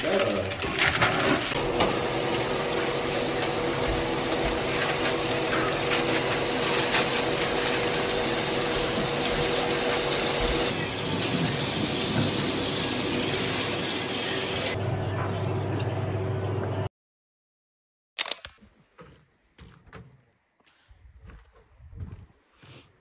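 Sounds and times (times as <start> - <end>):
meat sizzling in a frying pan: 1.6 - 10.7
range hood fan humming: 1.6 - 16.9.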